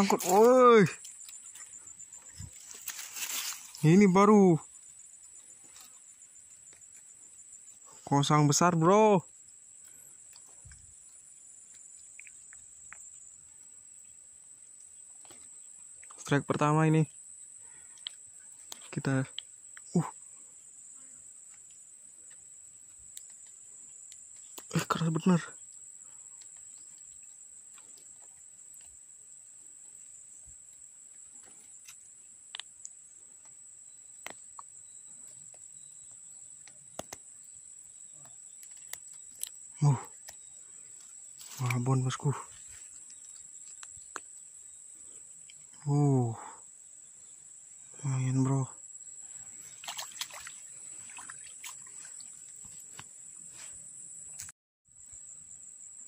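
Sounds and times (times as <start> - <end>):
faint clicks and rustles: 0.0 - 3.8
insects chirring: 0.0 - 56.0.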